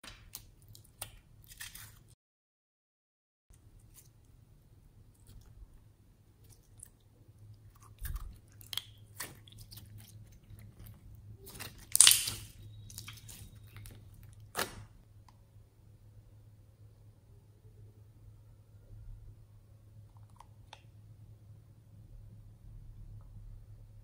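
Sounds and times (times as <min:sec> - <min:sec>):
slime squishing wet clicks and pops: 0:11.9 - 0:13.8.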